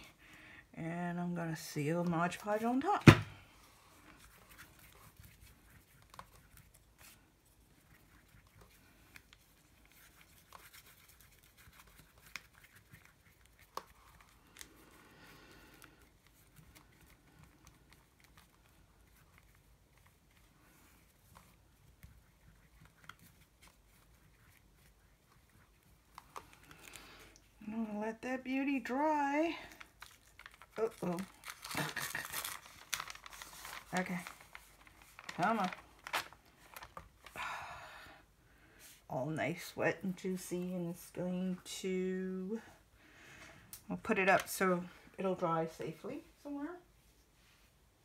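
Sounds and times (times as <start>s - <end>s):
brush rustling on paper: 1.6s - 27.8s, 28.5s - 37.4s.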